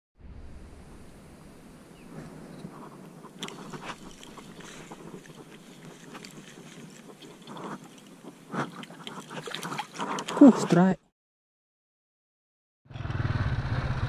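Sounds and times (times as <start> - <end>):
faint outdoor background: 0.2 - 11.1.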